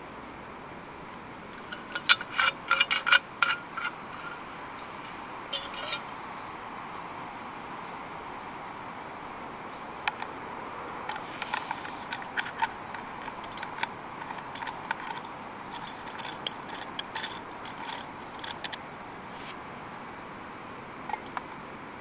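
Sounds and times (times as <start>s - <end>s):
steady hiss: 0.0s - 22.0s
small metal objects clinking: 1.6s - 6.2s, 11.1s - 18.8s, 21.1s - 21.4s.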